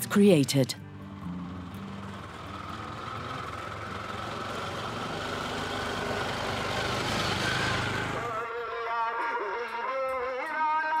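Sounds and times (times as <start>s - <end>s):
music: 0.0s - 4.0s, 8.2s - 11.0s
auto-rickshaw engine passing: 0.9s - 8.6s.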